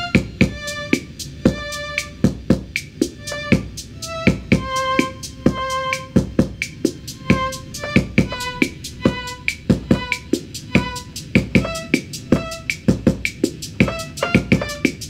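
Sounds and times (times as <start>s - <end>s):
fast drum beat: 0.0s - 15.0s
keyboard playing: 0.0s - 15.0s
short pitched keyboard notes: 3.2s - 12.8s.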